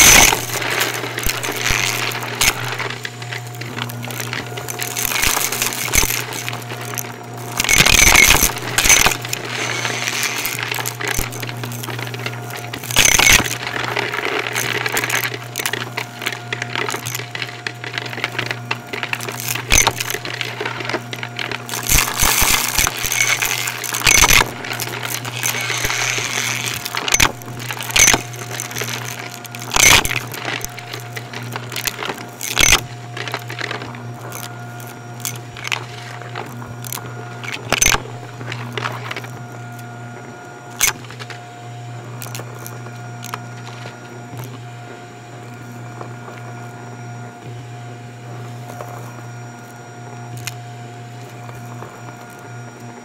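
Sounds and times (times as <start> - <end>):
debris crackling through vacuum: 0.0 - 36.2
vacuum cleaner motor hum: 0.0 - 53.0.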